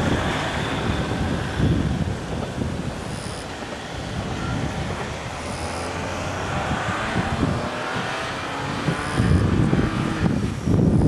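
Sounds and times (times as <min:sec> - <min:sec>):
distant diesel railcar rumble: 0:00.0 - 0:07.7
wind buffeting microphone: 0:00.0 - 0:11.0.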